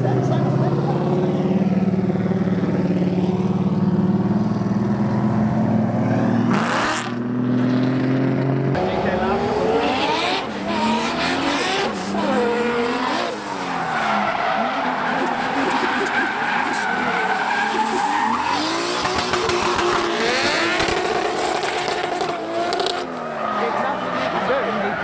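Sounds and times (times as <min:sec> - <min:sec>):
car engines revving: 0:00.0 - 0:25.0
tyre squeal and skidding: 0:10.7 - 0:25.0.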